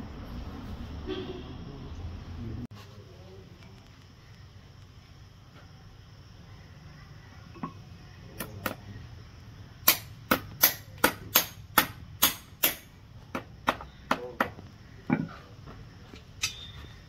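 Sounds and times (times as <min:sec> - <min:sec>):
hammer tapping horseshoe nails: 0:09.9 - 0:14.7.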